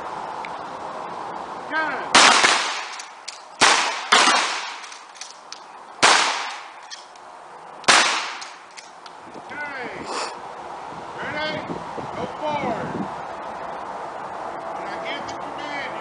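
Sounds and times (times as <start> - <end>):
shotgun shots with echo: 2.2 - 5.0, 6.0 - 6.8, 7.9 - 8.6.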